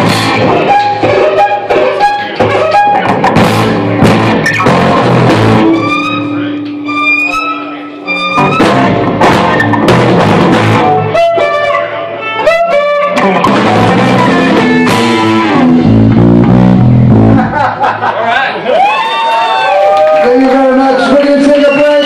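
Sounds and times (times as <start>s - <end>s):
drum kit: 0.0s - 7.5s, 8.2s - 17.8s
electric guitars: 0.0s - 18.2s
violin sliding between notes: 5.7s - 9.0s.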